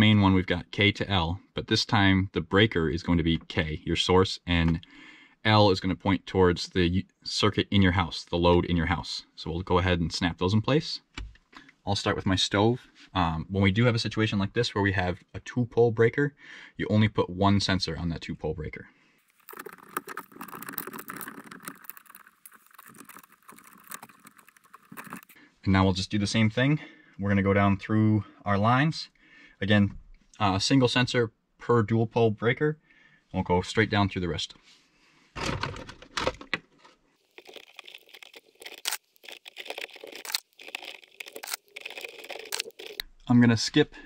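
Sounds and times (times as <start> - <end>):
rustling and scraping of wires: 19.2 - 25.4, 35.4 - 43.1
small plastic clicks: 35.8 - 43.0.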